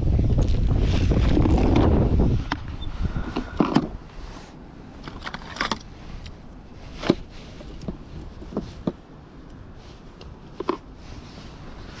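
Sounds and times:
plastic tackle box clicks and rattles: 5.0s - 5.9s.

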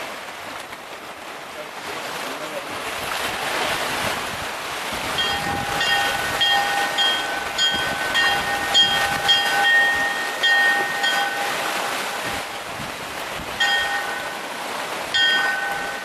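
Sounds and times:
waves: 0.0s - 16.0s
wind: 0.0s - 16.0s
church bells ringing: 5.2s - 11.6s, 13.6s - 14.4s, 15.2s - 16.0s.

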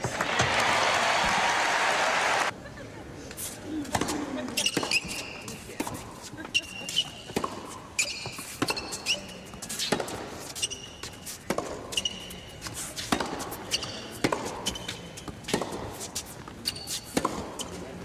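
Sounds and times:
shoe squeaks on court: 4.5s - 5.8s, 6.4s - 17.9s
tennis ball struck by rackets: 11.5s - 11.9s, 13.0s - 13.6s, 14.2s - 14.8s, 15.4s - 15.9s, 17.1s - 17.6s.

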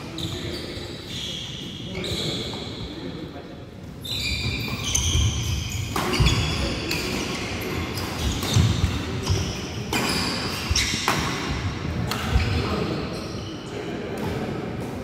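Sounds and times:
rackets hitting shuttlecock: 4.7s - 12.6s.

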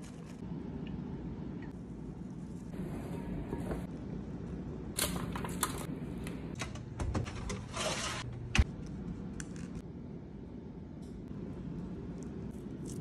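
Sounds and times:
steady low hum: 8.3s - 13.0s.

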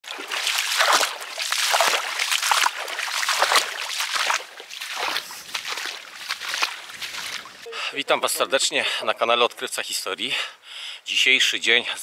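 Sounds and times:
boots splashing through mud: 0.0s - 7.7s.

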